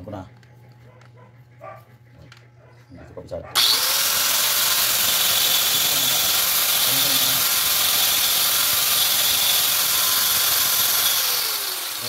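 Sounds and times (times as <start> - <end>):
angle grinder whining: 3.6 - 12.0.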